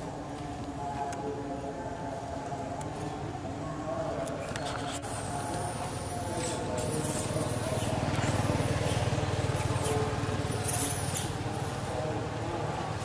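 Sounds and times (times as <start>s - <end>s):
vehicle engine rumbling: 4.3s - 13.0s.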